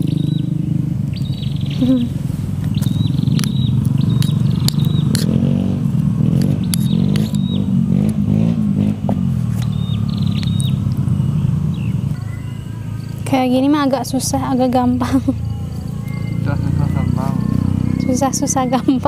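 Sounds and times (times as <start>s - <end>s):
bird chirping: 0.0s - 5.5s, 6.4s - 8.5s, 9.6s - 19.0s
traffic engine hum: 0.0s - 19.0s
sharp clicks: 2.6s - 5.4s.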